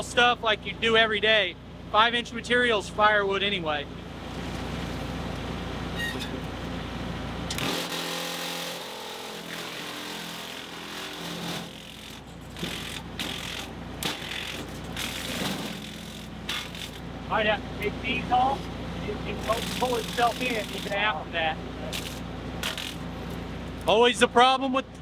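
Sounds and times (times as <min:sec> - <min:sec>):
wood chipper running: 0:03.9 - 0:24.1
branch cracking in chipper: 0:21.9 - 0:23.0.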